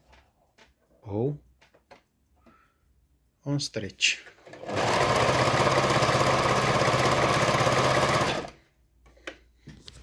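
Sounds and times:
sewing machine running: 4.4s - 8.6s.

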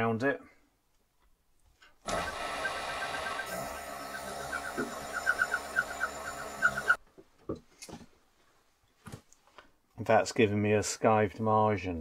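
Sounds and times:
chirping squeals of slipping wheel: 2.1s - 7.0s
skiving machine motor running: 2.1s - 7.0s.

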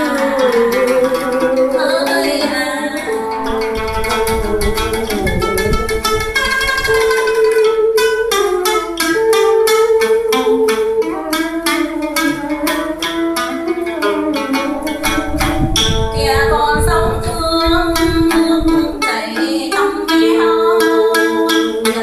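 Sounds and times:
woman singing: 0.0s - 3.6s, 16.1s - 22.0s
plucked lute melody: 0.0s - 22.0s.

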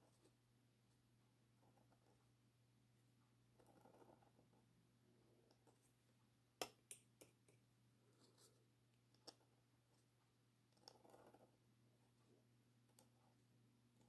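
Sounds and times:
pen nib scratching on paper: 10.7s - 11.6s.

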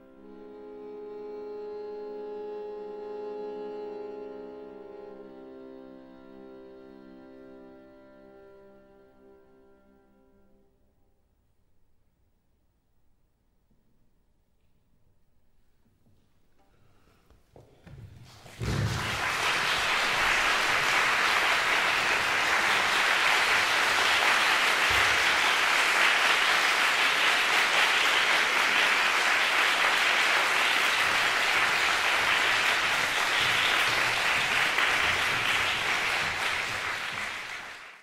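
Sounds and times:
audience applauding: 18.3s - 38.0s.

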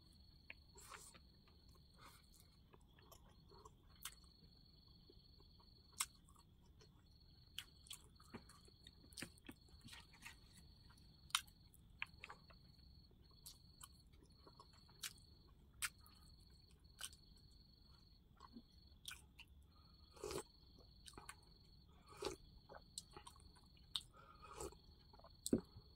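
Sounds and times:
chewing with wet mouth clicks: 0.4s - 4.4s, 5.9s - 8.1s, 13.4s - 16.2s, 16.9s - 17.4s, 18.4s - 19.6s, 22.1s - 25.7s.

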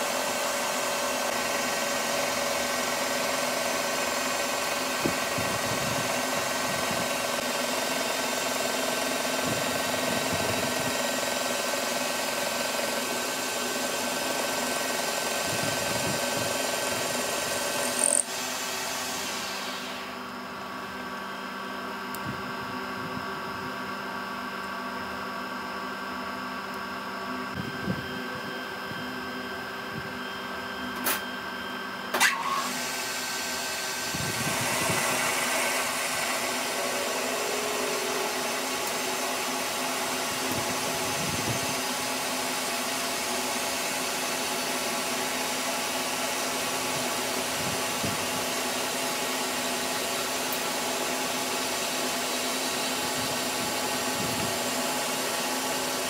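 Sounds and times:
metal lathe motor whine: 0.0s - 56.0s
cutting tool turning steel: 16.1s - 20.0s.

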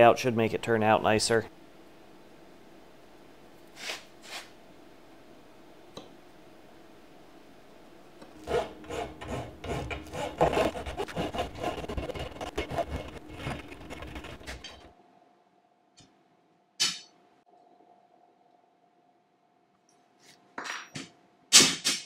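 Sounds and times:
hand file rasping on metal: 8.5s - 14.9s.

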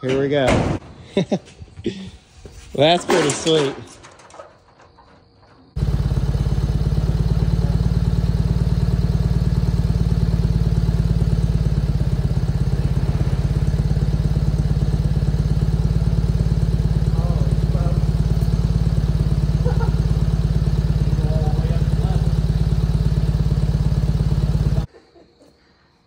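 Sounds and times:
motor running with fast pulse: 5.7s - 24.9s.

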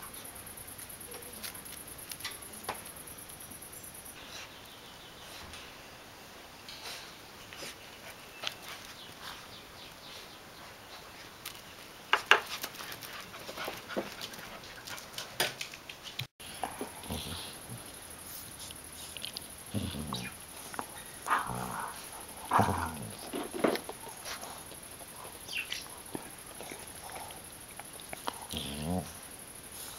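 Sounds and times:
puppies playing: 12.4s - 29.9s.

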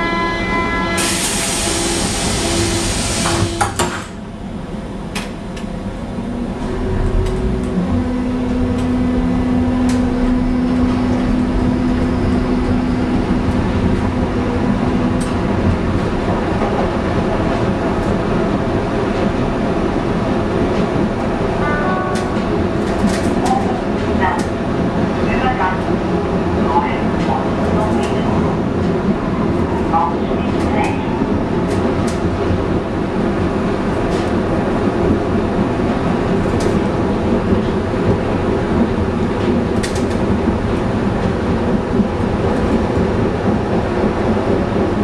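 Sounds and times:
train running noise: 0.0s - 45.0s
loud hiss: 1.0s - 3.6s
train doors banging shut: 3.1s - 4.2s
rail clicks: 5.1s - 5.8s, 6.5s - 45.0s.

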